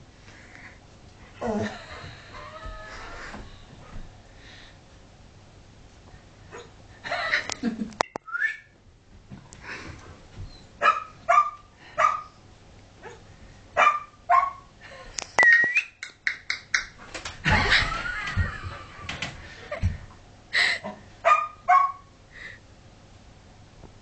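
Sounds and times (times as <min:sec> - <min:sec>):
dog barking: 0:10.8 - 0:12.3, 0:13.8 - 0:14.7, 0:21.2 - 0:22.1.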